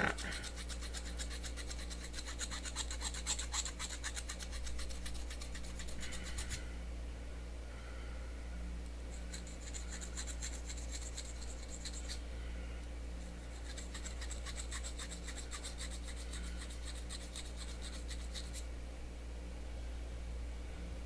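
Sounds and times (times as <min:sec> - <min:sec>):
file scraping metal: 0:00.0 - 0:06.6, 0:13.5 - 0:18.6.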